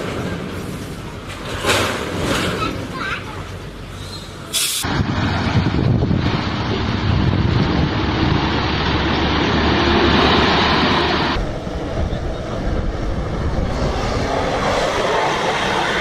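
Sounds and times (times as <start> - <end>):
vehicle engine and road noise: 0.0 - 16.0
tank engine running: 4.9 - 16.0.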